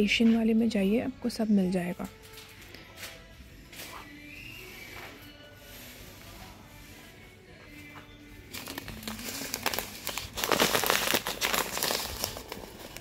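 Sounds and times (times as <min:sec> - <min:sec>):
background music: 0:00.0 - 0:13.0
plastic packaging crinkling: 0:08.4 - 0:13.0.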